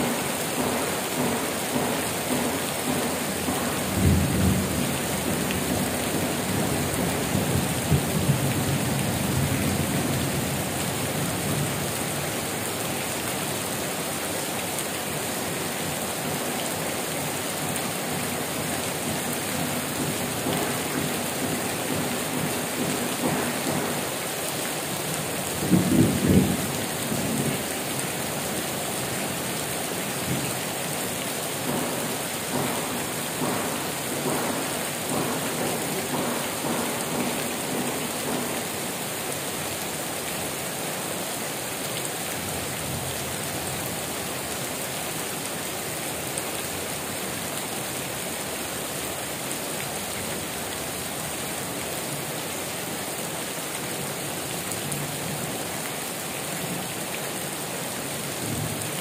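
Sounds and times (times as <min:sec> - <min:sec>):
heavy rain on metal roofs: 0:00.0 - 0:59.0
thunder rumbling: 0:25.4 - 0:27.7.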